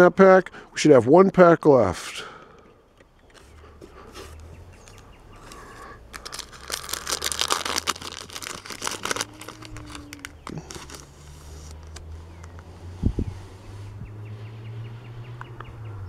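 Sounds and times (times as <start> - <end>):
cards rustling: 3.2 - 12.7
wrapper tearing and crinkling: 5.5 - 12.1.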